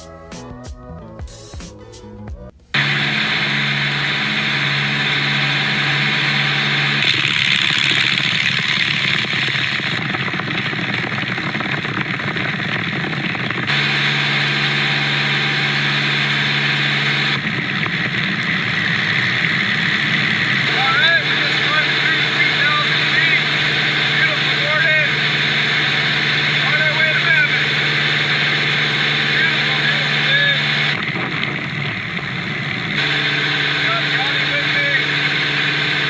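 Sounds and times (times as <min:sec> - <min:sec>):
light aircraft engine droning: 0:02.6 - 0:36.0
wind noise on microphone: 0:17.3 - 0:20.7, 0:30.9 - 0:33.0.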